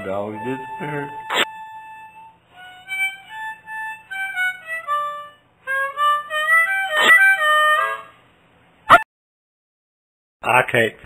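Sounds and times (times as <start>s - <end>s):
harmonica slow melody: 0.0s - 8.3s.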